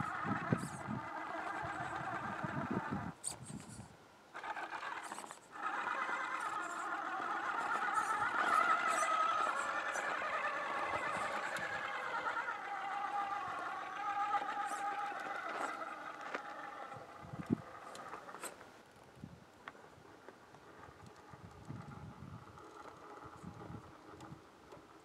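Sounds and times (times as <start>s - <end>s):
rc car electric motor whining: 0.0s - 18.7s, 20.0s - 25.0s
tyres scraping on stone: 4.4s - 18.7s.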